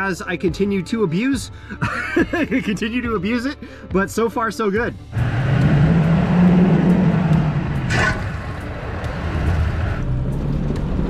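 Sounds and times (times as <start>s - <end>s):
truck engine running at low speed: 5.1s - 11.0s.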